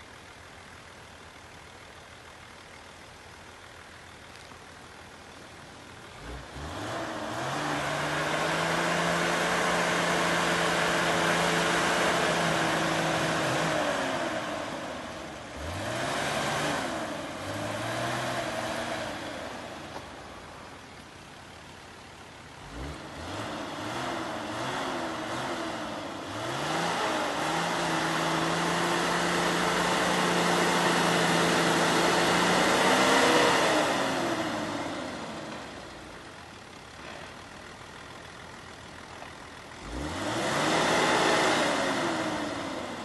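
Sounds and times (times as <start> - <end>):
tyres spinning in snow: 0.0 - 43.0
diesel engine revving hard: 6.2 - 19.8, 22.6 - 35.9, 39.7 - 43.0.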